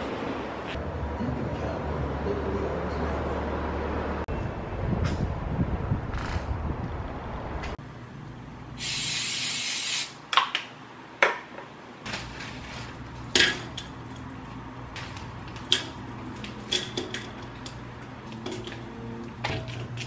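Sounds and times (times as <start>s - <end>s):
cooking spray hissing: 8.8s - 10.2s.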